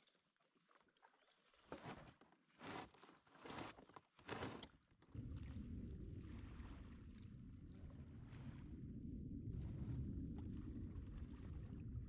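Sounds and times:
steady low rumble: 0:05.2 - 0:12.0.

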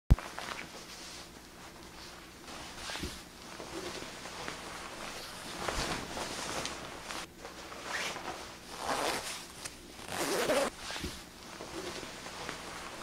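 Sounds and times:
nylon jacket rustling: 0:00.2 - 0:13.0
zipper zipping up: 0:07.9 - 0:09.4, 0:10.0 - 0:11.2.

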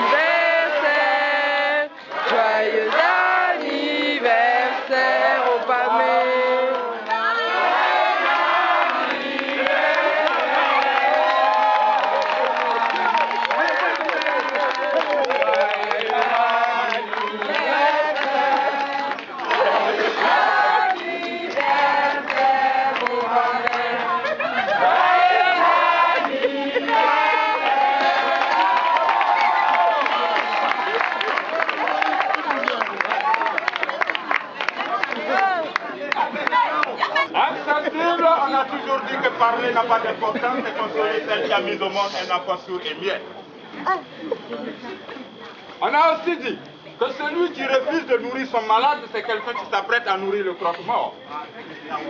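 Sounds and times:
group of voices chanting: 0:00.0 - 0:30.4.

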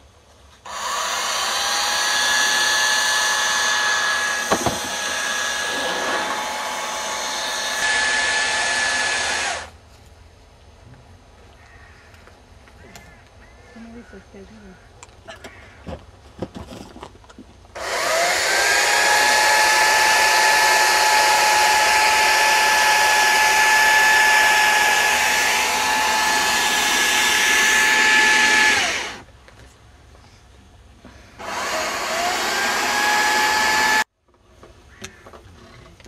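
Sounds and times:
power tool whining: 0:00.7 - 0:09.7, 0:17.8 - 0:29.3, 0:31.4 - 0:34.1.

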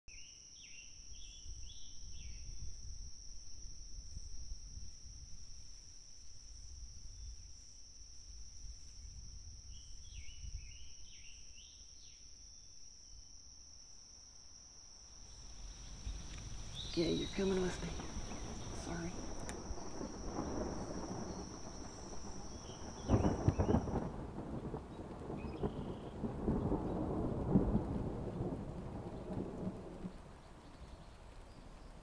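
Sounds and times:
high insect drone: 0:00.1 - 0:28.6
low rumble: 0:15.5 - 0:24.1.

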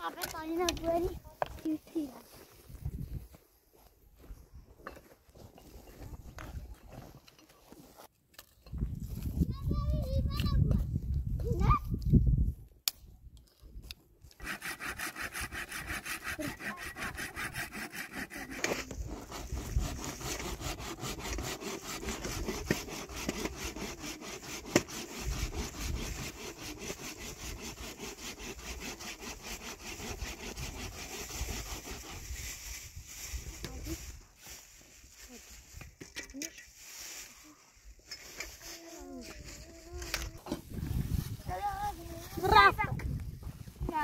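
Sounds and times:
hand saw cutting wood: 0:14.3 - 0:32.9.

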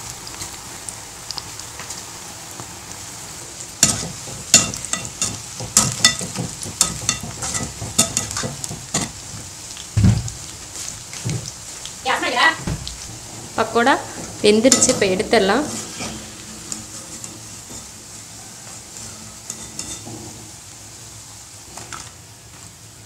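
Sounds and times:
food sizzling in hot oil: 0:00.0 - 0:23.0
metal spoon scraping pan: 0:03.8 - 0:09.2, 0:13.6 - 0:18.0, 0:19.0 - 0:20.3
dull thump: 0:10.0 - 0:10.4, 0:12.6 - 0:13.2.

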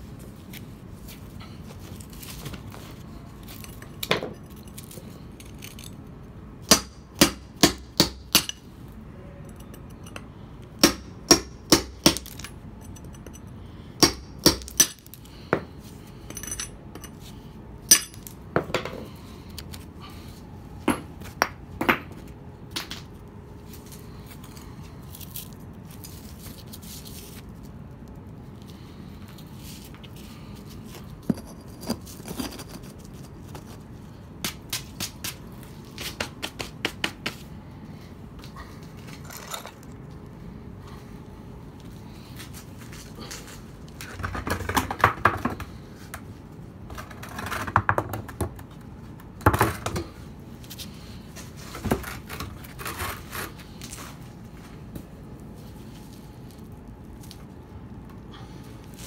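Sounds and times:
hammer striking a chisel on stone: 0:06.7 - 0:08.6, 0:10.8 - 0:12.5, 0:14.0 - 0:15.7, 0:17.9 - 0:18.3.

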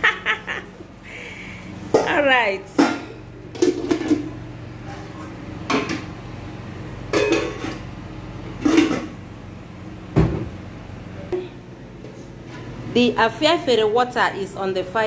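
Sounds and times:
metal pot lids clanking: 0:07.1 - 0:07.8.

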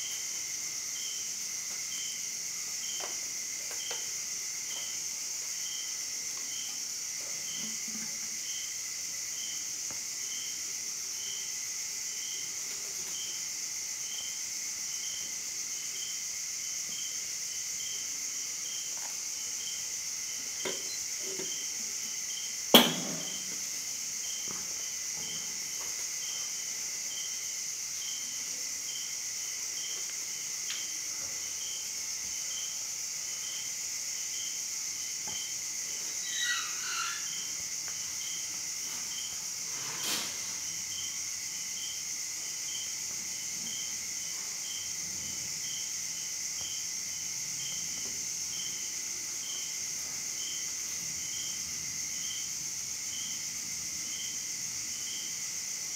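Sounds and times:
insects chirping: 0:00.0 - 0:55.9
sharp knock: 0:22.7 - 0:23.4.

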